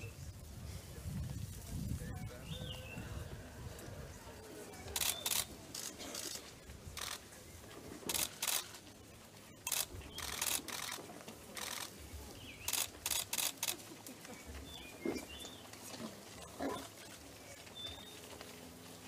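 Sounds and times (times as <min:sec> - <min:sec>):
camera shutters clicking: 0:04.9 - 0:06.4, 0:07.0 - 0:07.2, 0:08.0 - 0:08.8, 0:09.6 - 0:11.0, 0:11.6 - 0:11.9, 0:12.6 - 0:13.8.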